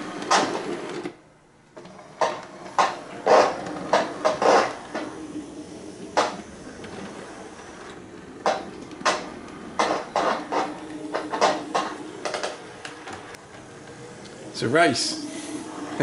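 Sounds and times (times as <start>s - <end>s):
faint model train motor hum: 1.8s - 10.0s
wheels clicking on track: 1.8s - 16.0s.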